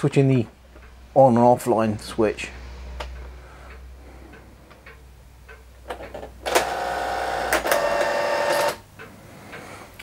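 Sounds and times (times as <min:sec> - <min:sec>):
printer mechanism whirring: 0:05.9 - 0:08.9.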